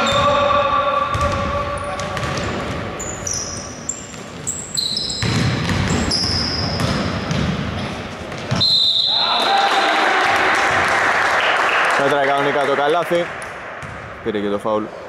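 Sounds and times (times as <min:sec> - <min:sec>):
sneakers squeaking: 0:00.0 - 0:00.4, 0:01.1 - 0:09.4, 0:13.8 - 0:14.2
basketball dribbling: 0:01.1 - 0:03.3, 0:04.0 - 0:07.7, 0:13.8 - 0:14.1.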